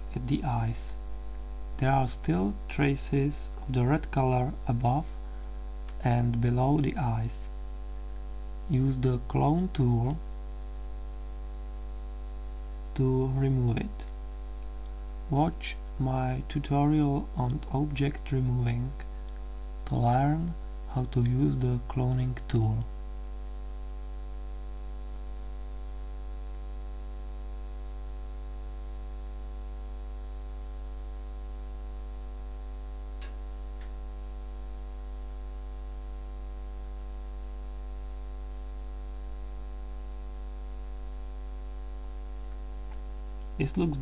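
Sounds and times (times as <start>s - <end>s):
electrical mains hum: 0.0s - 44.0s
sharp click: 33.2s - 34.0s.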